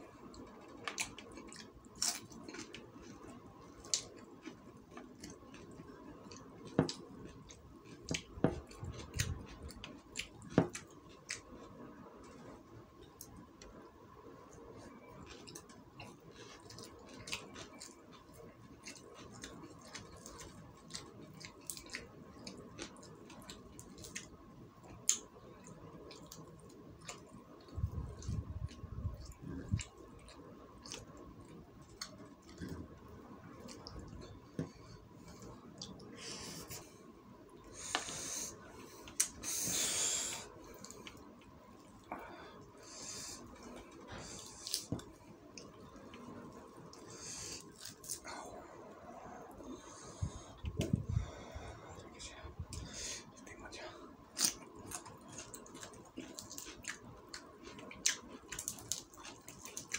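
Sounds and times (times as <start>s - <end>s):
close chewing with mouth clicks: 0.3s - 11.7s, 14.8s - 32.9s, 54.3s - 59.9s.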